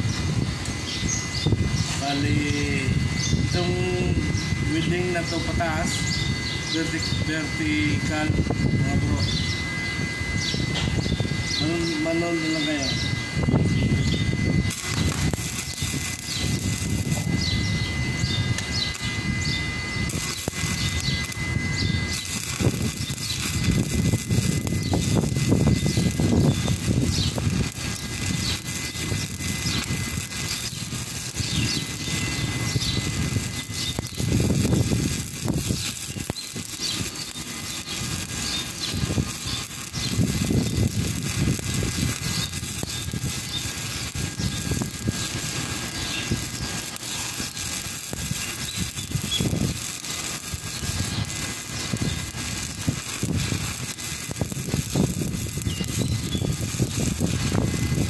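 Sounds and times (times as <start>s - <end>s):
welding arc crackling: 0.0s - 58.0s.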